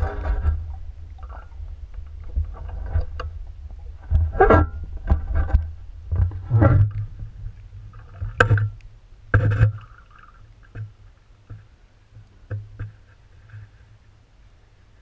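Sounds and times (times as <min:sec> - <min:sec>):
low rumble: 0:00.0 - 0:09.9
muffled underwater knocks: 0:00.0 - 0:10.0, 0:12.4 - 0:13.0.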